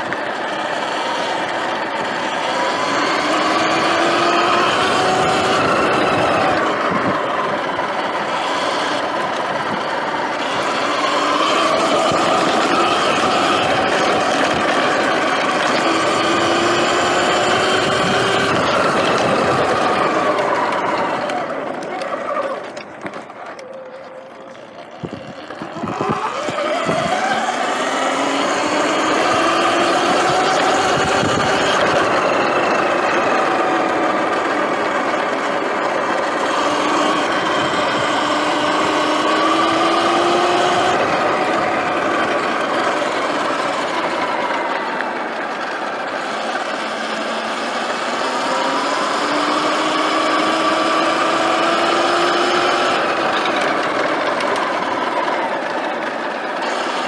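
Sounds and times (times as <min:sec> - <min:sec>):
electric motor whine: 0:00.0 - 0:57.0
wind and tyre noise: 0:00.0 - 0:57.0.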